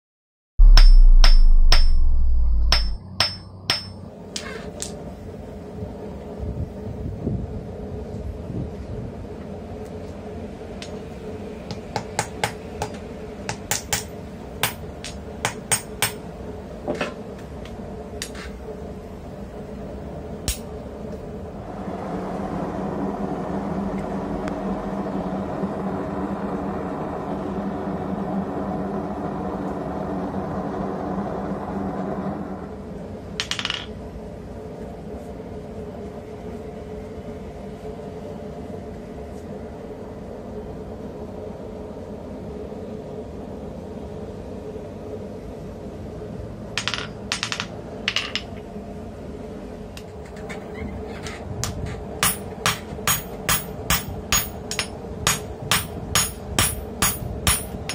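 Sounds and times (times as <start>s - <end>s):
forge humming: 0.6s - 7.0s, 9.3s - 33.4s, 48.7s - 57.9s.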